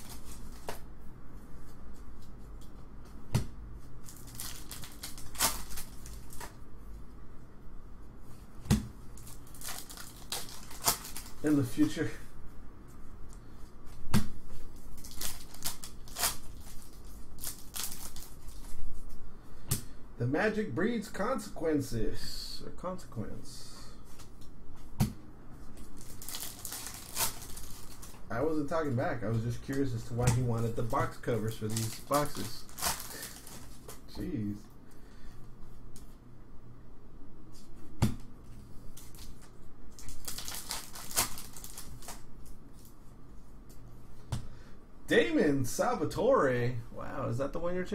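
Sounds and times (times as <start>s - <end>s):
foil wrapper crinkling: 4.0s - 6.6s, 9.2s - 11.6s, 14.7s - 18.8s, 25.8s - 28.3s, 30.6s - 34.0s, 39.0s - 42.9s.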